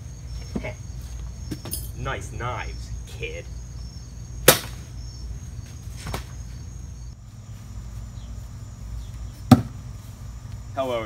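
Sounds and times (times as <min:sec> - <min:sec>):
insect chirring: 0:00.0 - 0:11.0
knife thunking into wood: 0:09.5 - 0:09.8.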